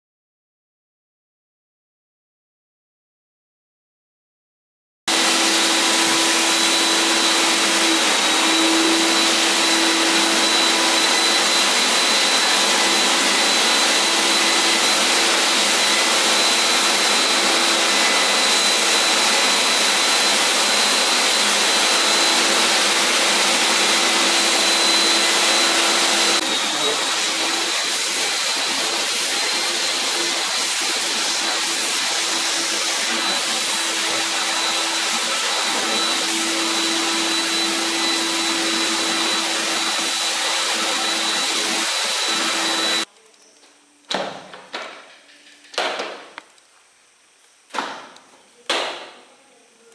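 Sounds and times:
vacuum cleaner humming and whining: 5.1s - 43.1s.

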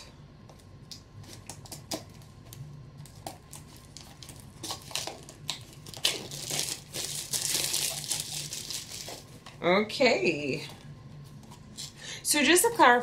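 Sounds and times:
plastic wrap crinkling: 1.2s - 9.6s.

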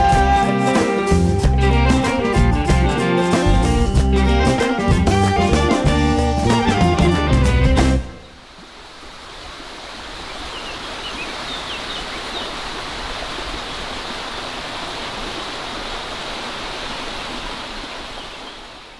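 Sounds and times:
stream water running: 8.0s - 18.9s.

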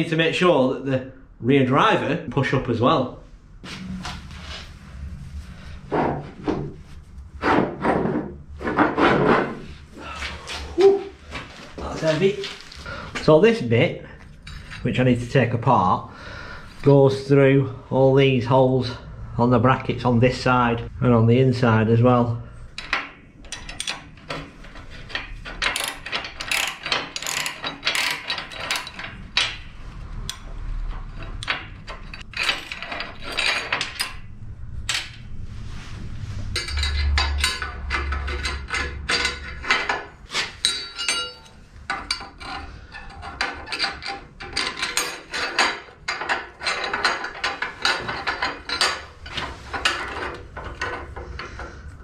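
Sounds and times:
steel parts clinking: 14.2s - 14.9s, 22.7s - 34.3s, 36.5s - 52.0s
ratchet spanner clicking: 25.2s - 29.0s.

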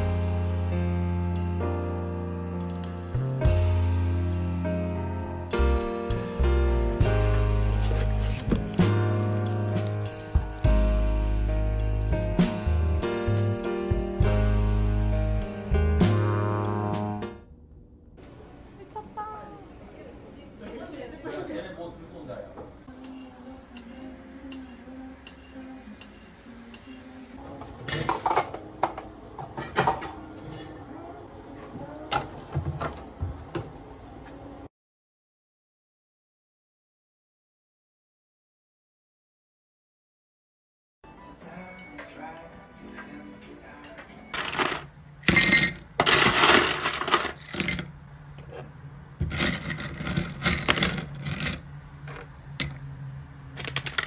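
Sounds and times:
small hard objects clinking: 44.4s - 47.9s.

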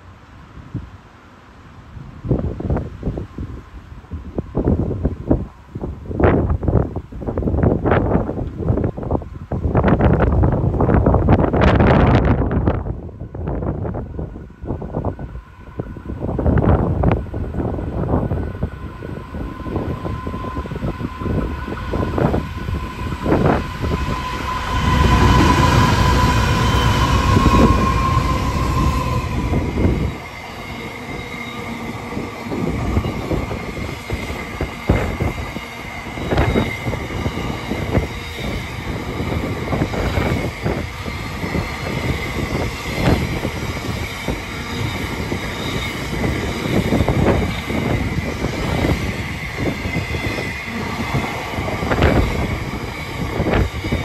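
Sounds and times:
steady whining tone: 11.5s - 54.0s
faint high wheel squeal: 18.6s - 54.0s.

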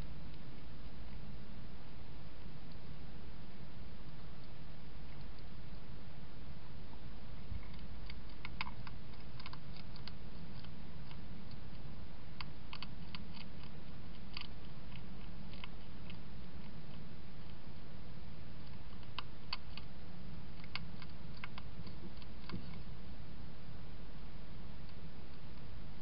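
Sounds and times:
steady low hum: 0.0s - 26.0s
hedgehog chewing and crunching: 7.3s - 23.0s.

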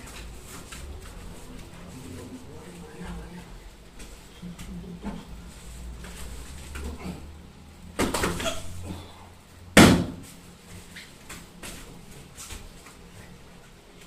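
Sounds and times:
bodies thudding on foam mats: 7.9s - 8.6s, 9.8s - 12.8s.

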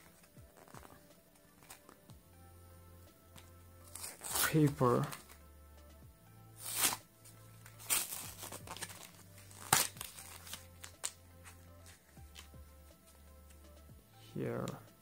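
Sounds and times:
paper peeling off blister pack: 0.0s - 2.0s, 3.9s - 5.4s, 6.6s - 7.0s, 7.6s - 12.5s
plastic crinkling: 0.0s - 2.0s, 7.6s - 12.5s
quiet background music: 0.0s - 15.0s.

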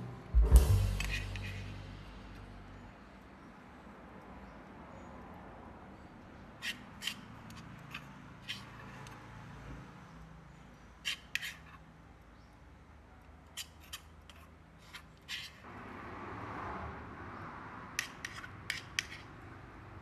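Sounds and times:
cooking tools clicking and snipping: 18.0s - 19.3s.

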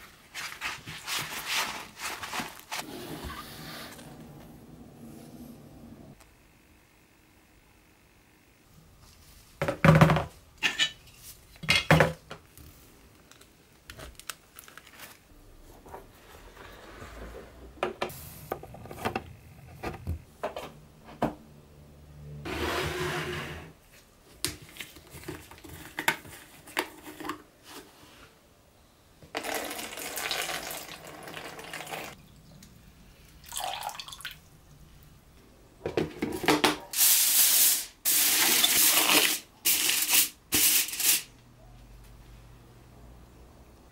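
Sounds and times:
aluminium foil crinkling: 13.3s - 15.3s
liquid pouring into plastic tub: 29.3s - 32.1s.

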